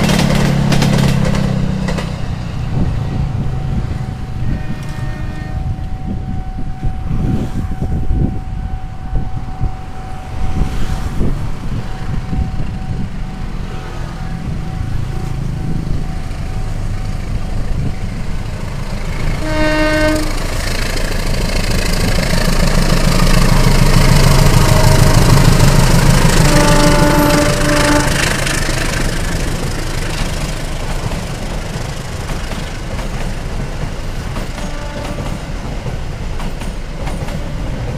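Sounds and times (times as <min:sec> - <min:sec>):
locomotive engine passing: 0:00.0 - 0:37.9
train wheels on rails: 0:00.0 - 0:37.9
train horn blast: 0:03.3 - 0:11.0, 0:19.3 - 0:20.6, 0:23.5 - 0:29.3, 0:34.6 - 0:35.5.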